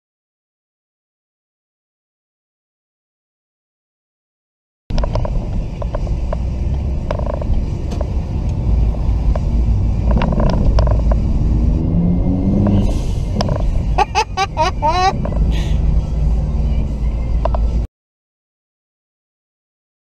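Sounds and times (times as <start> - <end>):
car engine and road noise: 4.9 - 17.9.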